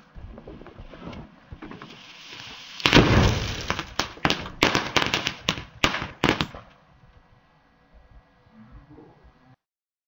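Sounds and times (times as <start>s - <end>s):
firework burst: 1.8s - 6.7s
firework cracks: 1.8s - 6.7s.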